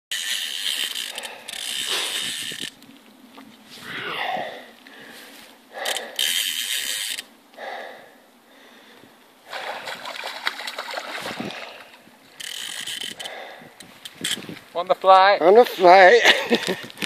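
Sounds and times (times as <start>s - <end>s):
fly reel ratchet buzzing: 0.1s - 2.8s, 5.8s - 7.3s, 12.3s - 14.4s
fish splashing: 9.5s - 12.1s.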